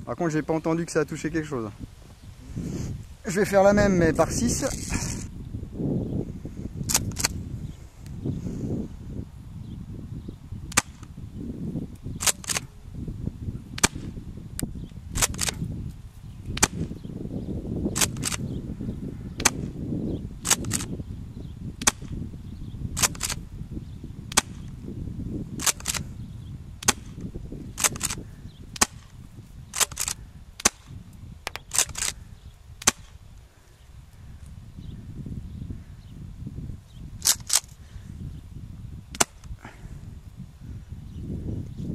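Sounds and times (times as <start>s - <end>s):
low wind rumble on microphone: 0.0s - 41.9s
airsoft shotgun pops: 6.9s - 7.4s, 10.7s - 11.1s, 12.2s - 12.7s, 13.8s - 15.6s, 16.5s - 16.9s, 18.0s - 18.4s, 19.4s - 19.7s, 20.4s - 20.9s, 21.8s - 22.2s, 23.0s - 23.4s, 24.3s - 24.7s, 25.6s - 26.0s, 26.8s - 27.2s, 27.8s - 29.1s, 29.7s - 32.2s, 32.8s - 33.2s, 39.1s - 39.5s
shotgun pump clacking: 6.9s - 7.4s, 12.2s - 12.6s, 15.2s - 15.6s, 18.0s - 18.4s, 20.4s - 20.9s, 23.0s - 23.4s, 25.6s - 26.0s, 27.8s - 28.2s, 29.7s - 32.2s, 37.2s - 37.8s.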